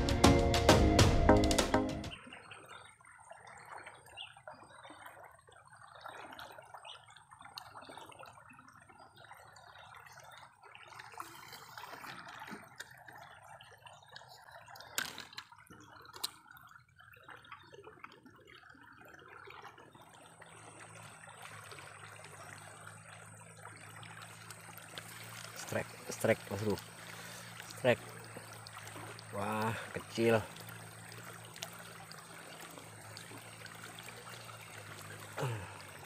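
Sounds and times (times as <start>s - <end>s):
river current rushing: 24.2s - 36.0s.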